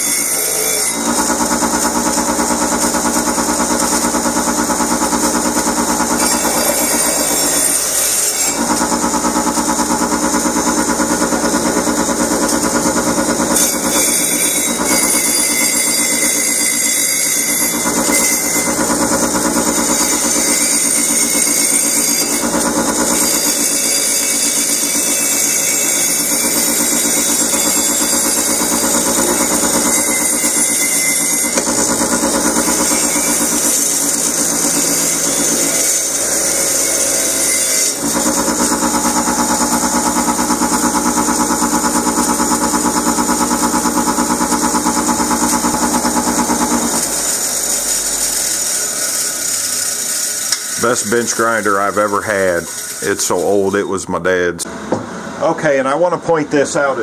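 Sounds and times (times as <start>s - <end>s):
bench grinder motor humming: 0.0s - 53.6s
metal tube against wire wheel: 0.0s - 53.6s.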